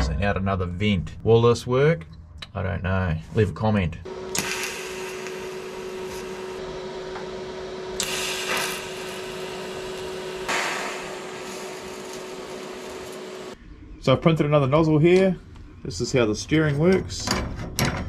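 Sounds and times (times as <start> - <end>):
welding arc hissing: 4.1 - 13.6.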